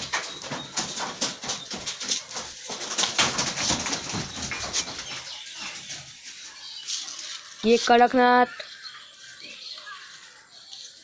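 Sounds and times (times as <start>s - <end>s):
knocks: 0.0s - 5.3s
rustling: 0.0s - 8.2s
chickens calling: 0.0s - 11.0s.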